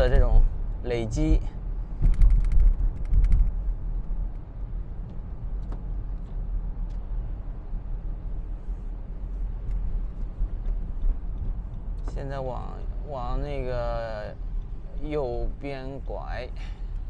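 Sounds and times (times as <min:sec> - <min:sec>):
clicks and rattles: 0:02.0 - 0:03.6.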